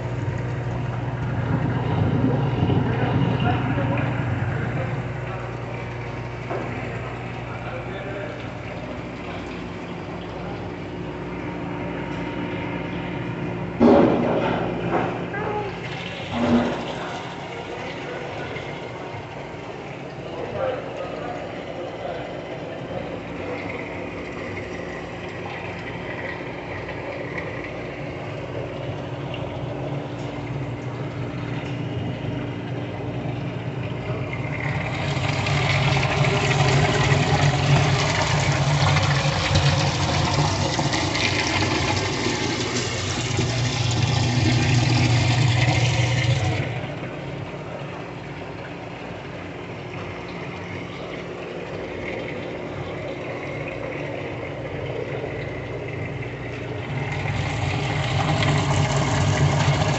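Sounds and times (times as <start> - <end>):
circulating water running: 0.0 - 59.9
steady machine hum: 0.0 - 59.9
splashing bubbling water rush: 15.6 - 59.9.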